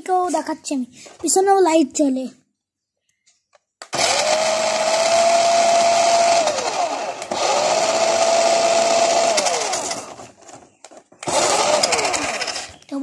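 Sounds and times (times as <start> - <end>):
toy car motor whining: 4.0 - 10.3, 11.2 - 13.0.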